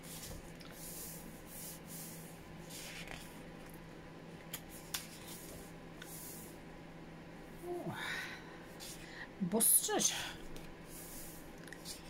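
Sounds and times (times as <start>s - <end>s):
book pages turning: 2.7s - 3.8s, 4.5s - 5.7s.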